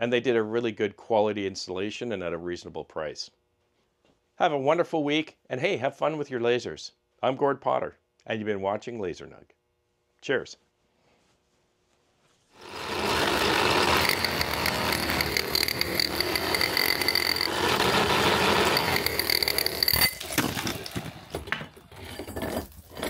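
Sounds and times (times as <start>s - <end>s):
power drill boring into concrete: 12.6s - 21.3s.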